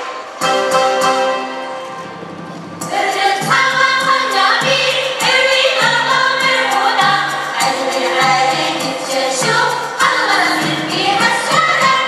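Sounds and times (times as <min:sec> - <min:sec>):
percussive beat: 0:00.0 - 0:12.0
voices singing a melody: 0:02.8 - 0:12.0.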